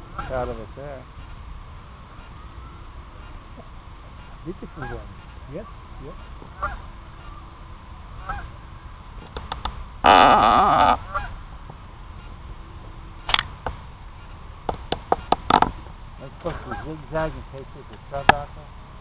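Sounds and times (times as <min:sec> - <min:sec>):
geese honking: 0:00.0 - 0:09.0, 0:10.0 - 0:11.6, 0:16.3 - 0:17.3.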